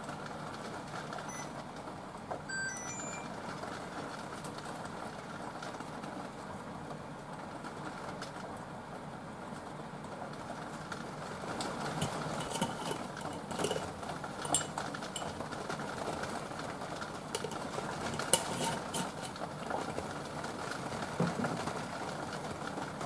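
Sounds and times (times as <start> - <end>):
teaspoon clinking on jars and plate: 12.0 - 15.4, 17.4 - 19.3.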